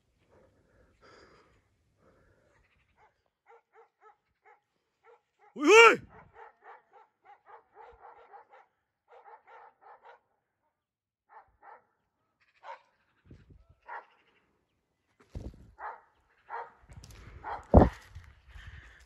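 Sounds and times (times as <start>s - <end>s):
distant dogs barking: 2.9s - 10.3s, 13.8s - 14.2s, 15.8s - 16.8s.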